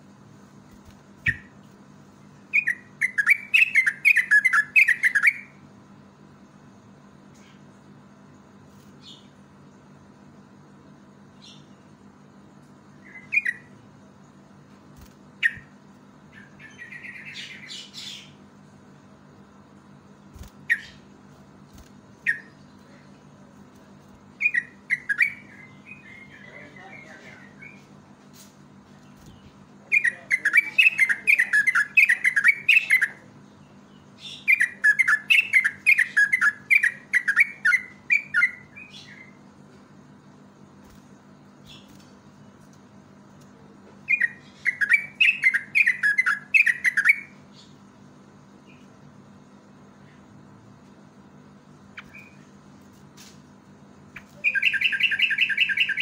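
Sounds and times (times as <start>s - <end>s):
bulbul singing: 1.2s - 1.6s, 2.4s - 5.6s, 12.9s - 14.4s, 15.3s - 18.5s, 19.8s - 23.5s, 24.3s - 27.9s, 28.9s - 39.4s, 44.0s - 47.9s, 51.7s - 52.6s, 54.0s - 56.0s.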